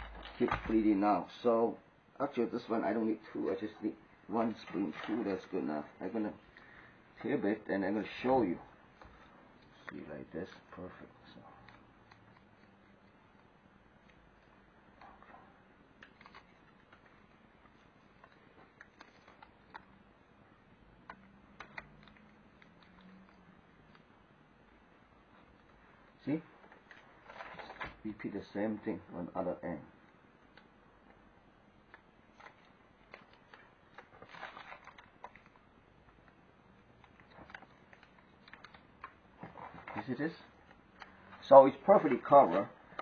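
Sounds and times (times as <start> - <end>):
plastic cover crinkling: 0.0 - 1.5, 4.4 - 29.0, 30.0 - 43.0
fingers clicking on plastic: 20.9 - 24.9.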